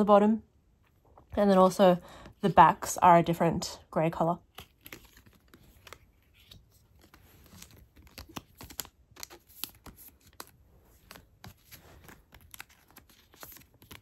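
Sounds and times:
plastic sleeves clicking and rustling: 0:04.5 - 0:14.0.

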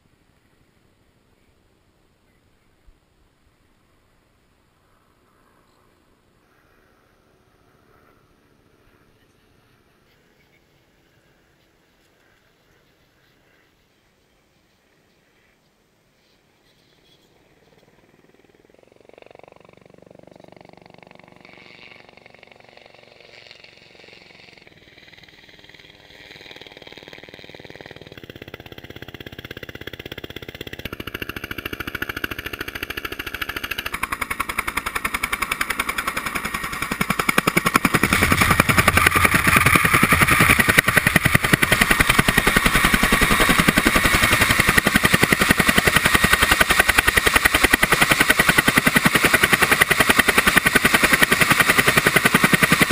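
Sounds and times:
helicopter rotor thumping: 0:25.0 - 0:52.9.

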